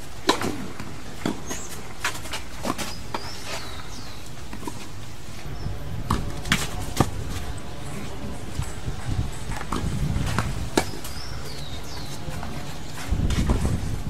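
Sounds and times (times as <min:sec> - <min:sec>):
steady low rumble: 0:03.9 - 0:14.0.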